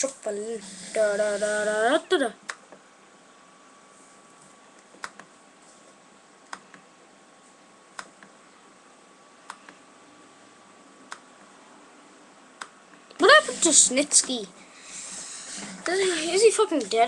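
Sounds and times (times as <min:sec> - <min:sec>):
faint steady whine: 0:00.0 - 0:17.0
computer mouse clicking: 0:04.8 - 0:05.3, 0:08.0 - 0:08.4, 0:11.1 - 0:11.3.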